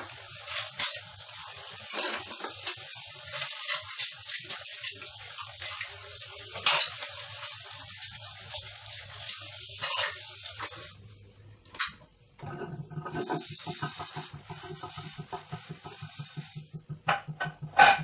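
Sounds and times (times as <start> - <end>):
tap water running into sink: 12.4 - 17.8.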